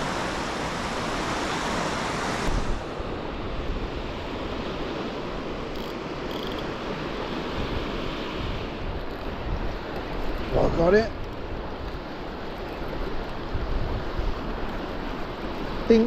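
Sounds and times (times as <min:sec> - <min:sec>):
waves breaking on beach: 0:00.0 - 0:16.0
wind buffeting microphone: 0:06.9 - 0:16.0.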